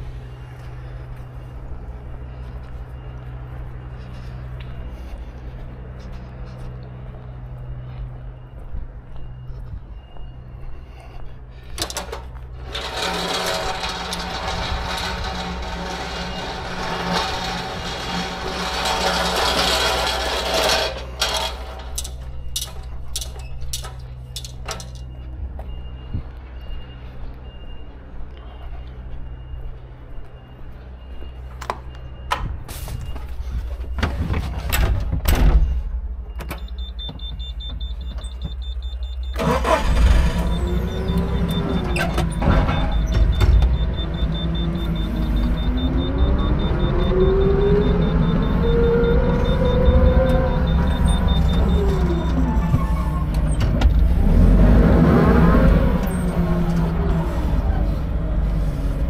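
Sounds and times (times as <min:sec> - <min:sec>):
truck engine running: 0:00.0 - 0:28.4, 0:36.0 - 0:59.0
faint high beeping tone: 0:40.4 - 0:53.3.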